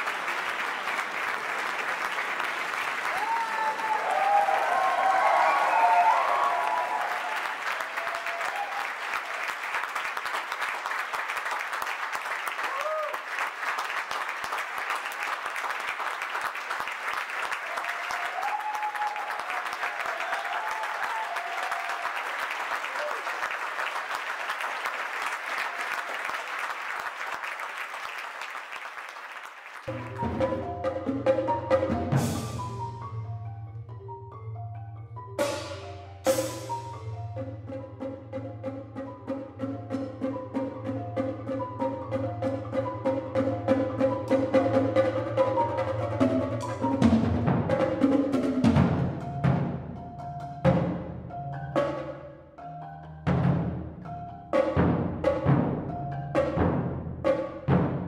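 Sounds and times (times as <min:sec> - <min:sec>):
audience applauding: 0:00.0 - 0:30.2.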